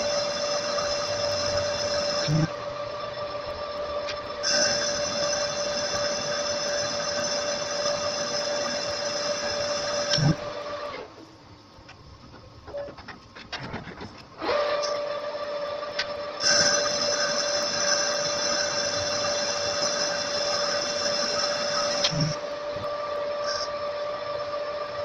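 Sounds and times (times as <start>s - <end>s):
metal lathe whining: 0.0s - 11.1s, 14.4s - 25.0s.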